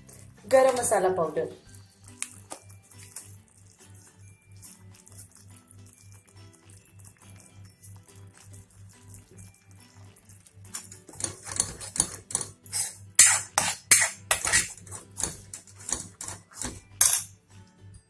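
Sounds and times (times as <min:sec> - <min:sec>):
spoon scraping metal pot: 0:09.9 - 0:17.3.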